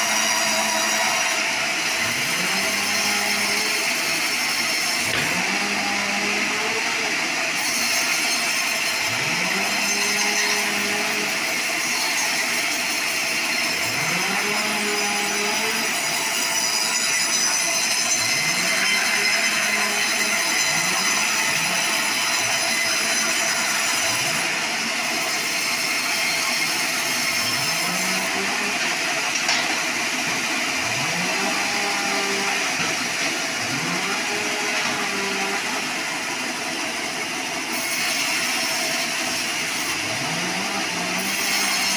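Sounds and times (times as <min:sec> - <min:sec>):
band saw cutting log: 0:00.0 - 0:41.9.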